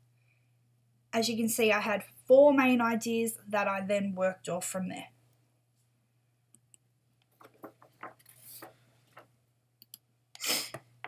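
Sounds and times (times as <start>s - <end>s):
low steady hum: 0.0s - 10.3s
soft clicks and ticks: 6.5s - 10.1s.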